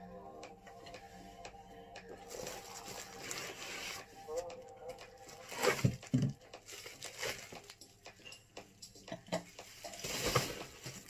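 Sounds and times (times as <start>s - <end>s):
paper and bubble-wrap rustling: 2.3s - 4.0s, 5.3s - 7.8s, 10.0s - 11.0s.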